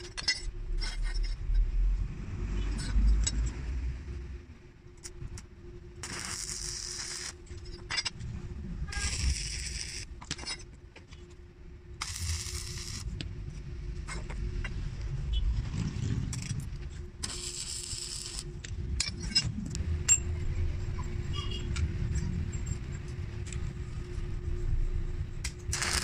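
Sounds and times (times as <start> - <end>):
metal clinks and scrapes: 0.0 - 1.6, 7.4 - 8.3, 8.9 - 11.3, 15.8 - 20.4
faint steady hum: 0.0 - 26.0
arc welding hiss: 6.0 - 7.4, 8.9 - 10.0, 12.0 - 13.1, 17.2 - 18.5, 25.7 - 26.0.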